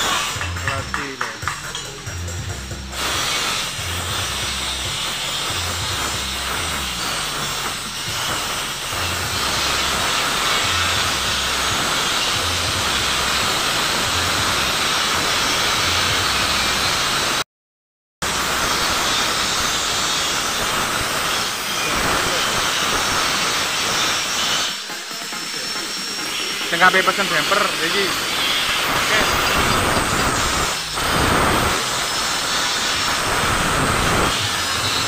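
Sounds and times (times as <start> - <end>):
steady hiss: 26.0 - 35.0.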